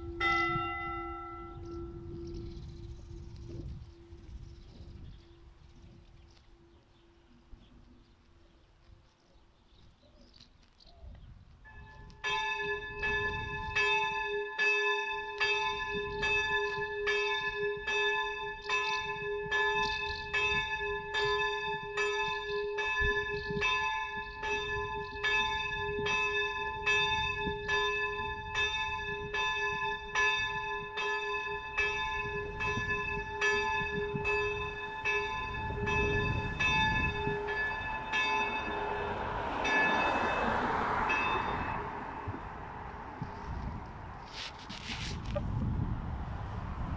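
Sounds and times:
church bell tolling: 0:00.0 - 0:04.3, 0:11.7 - 0:42.7
bell hum: 0:00.0 - 0:07.7, 0:11.7 - 0:42.5.

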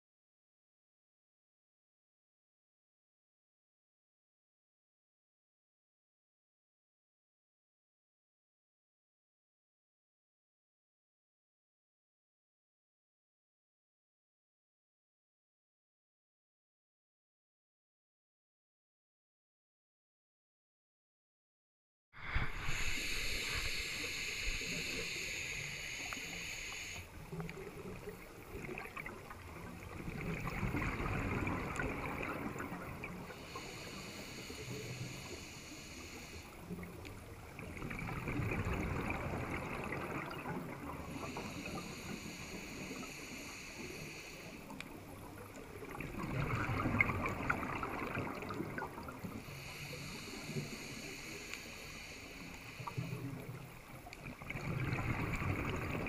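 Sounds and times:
bubbling exhale underwater: 0:22.2 - 0:27.0, 0:30.0 - 0:33.3, 0:37.7 - 0:41.6, 0:45.8 - 0:49.3, 0:54.5 - 0:56.0
regulator hissing inhale: 0:22.2 - 0:27.4, 0:33.2 - 0:36.9, 0:41.0 - 0:45.2, 0:49.0 - 0:53.6.

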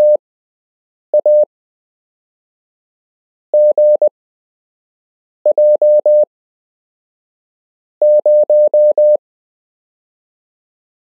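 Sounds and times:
morse code tone: 0:01.2 - 0:01.4, 0:03.6 - 0:04.0, 0:08.0 - 0:09.2.

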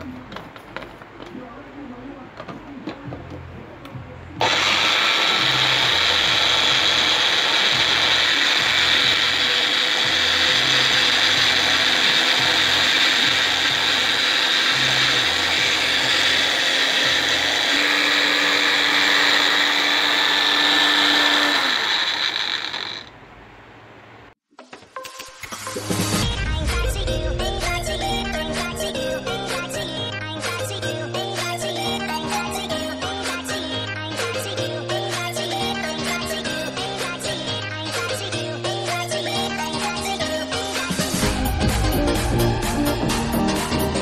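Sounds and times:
blender motor running: 0:04.4 - 0:23.2.

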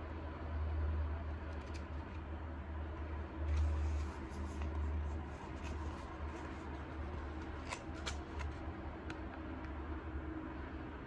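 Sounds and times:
book pages rustling: 0:01.6 - 0:02.2, 0:03.1 - 0:08.7.

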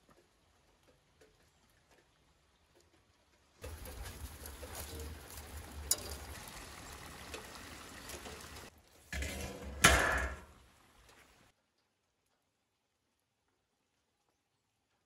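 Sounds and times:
metal lid clattering down: 0:09.2 - 0:10.5.

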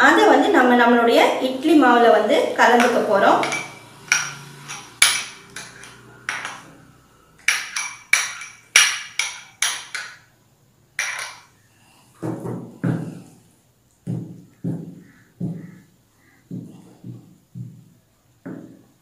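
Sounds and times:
spoon knocking in bowl: 0:02.7 - 0:10.2, 0:11.0 - 0:11.5
spoon clinking against glass jar: 0:02.8 - 0:06.8.

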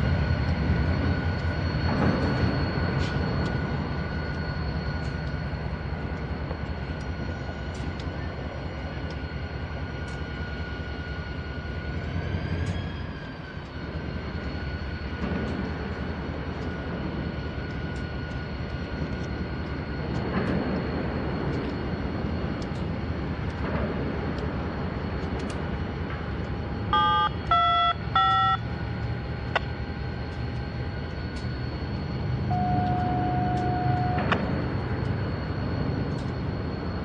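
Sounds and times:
steady low rumble: 0:00.0 - 0:37.0
long steady beep: 0:26.7 - 0:37.0
short electronic beeps: 0:26.9 - 0:28.7, 0:32.5 - 0:34.3.

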